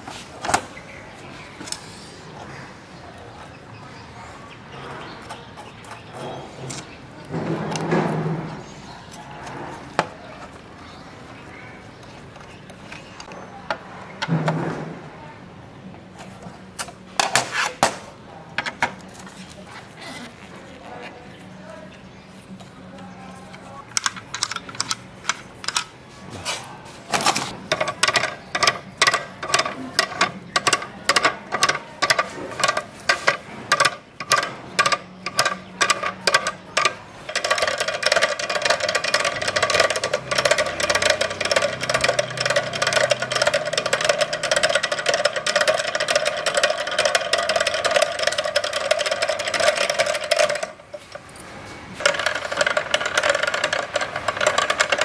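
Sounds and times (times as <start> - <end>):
gear pins clicking: 23.9 - 26.0, 27.5 - 55.0.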